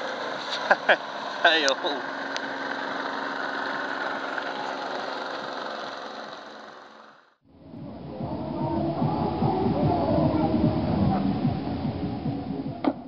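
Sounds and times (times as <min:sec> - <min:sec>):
motor drone: 0:02.0 - 0:13.0
low rough rumble: 0:07.5 - 0:13.0.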